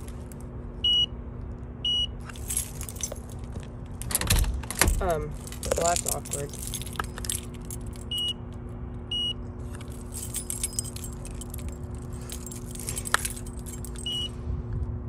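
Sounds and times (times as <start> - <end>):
keys jangling: 0.0 - 0.5, 2.2 - 8.3, 9.6 - 14.4
steady low hum: 0.0 - 15.0
card reader beep: 1.9 - 2.2, 8.1 - 8.4, 9.1 - 9.4, 14.0 - 14.3.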